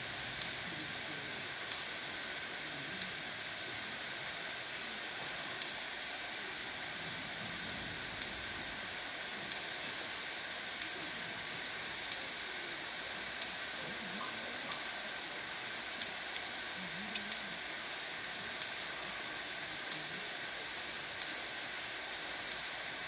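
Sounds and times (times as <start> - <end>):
steady background hiss: 0.0 - 23.0
faint sharp clicks: 12.1 - 12.3, 17.1 - 17.5, 22.5 - 22.7.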